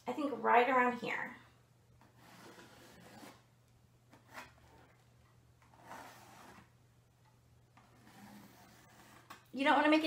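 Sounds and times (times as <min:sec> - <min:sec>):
room hum: 0:00.0 - 0:10.0
pencil scratching on canvas: 0:02.0 - 0:03.5, 0:05.7 - 0:06.7, 0:07.8 - 0:09.5.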